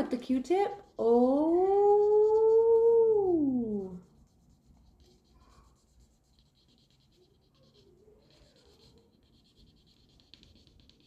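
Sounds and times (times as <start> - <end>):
cotton swab scratching foil: 0.0 - 11.0
voice holding a sliding note: 1.0 - 4.0.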